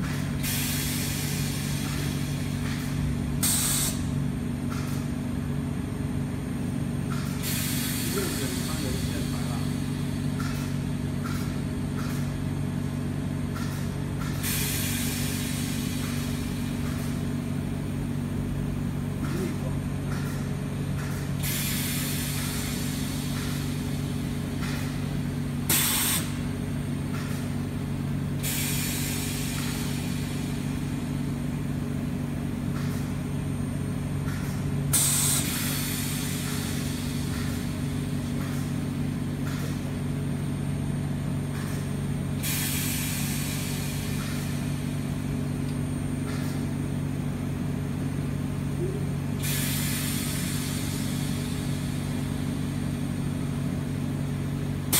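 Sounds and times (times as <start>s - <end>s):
low machine hum: 0.0s - 54.9s
gas hissing: 3.4s - 4.1s, 7.3s - 10.8s, 14.4s - 18.4s, 21.4s - 27.6s, 28.3s - 32.3s, 34.9s - 40.0s, 42.4s - 45.8s, 48.8s - 53.7s.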